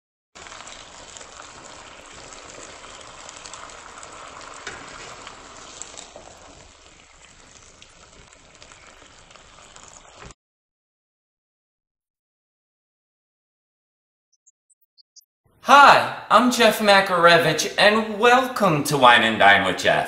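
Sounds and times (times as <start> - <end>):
food sizzling in a wok: 0.4 - 10.3
metal spatula tossing food: 0.4 - 10.3.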